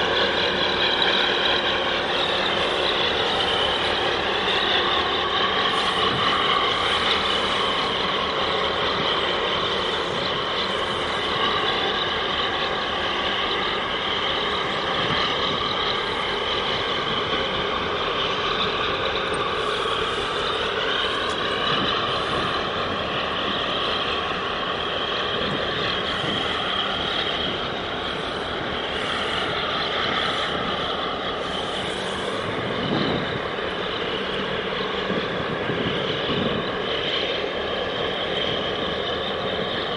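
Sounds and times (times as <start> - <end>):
marine diesel engines droning: 0.0 - 39.9
whining tones drifting in pitch: 0.0 - 39.9.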